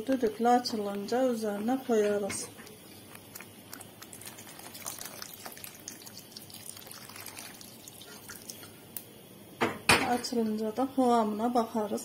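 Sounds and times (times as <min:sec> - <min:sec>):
sauce bubbles popping: 0:00.0 - 0:09.1.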